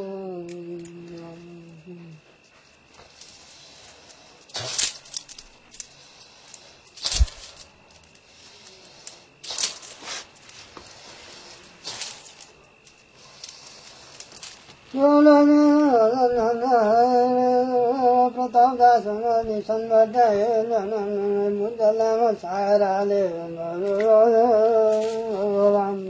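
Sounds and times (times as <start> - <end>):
breathy blowing hisses: 1.8 - 15.2.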